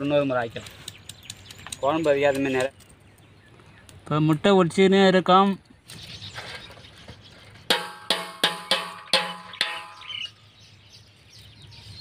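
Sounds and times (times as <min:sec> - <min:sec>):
eggs knocking on a steel bowl: 0:07.7 - 0:10.0.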